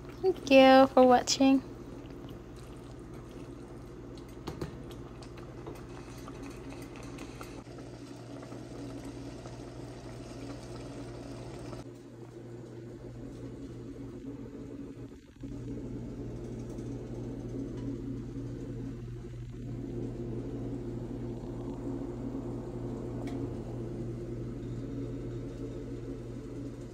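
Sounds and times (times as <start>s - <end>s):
low steady hum: 0.0s - 26.9s
sauce bubbling in a pot: 1.6s - 16.8s.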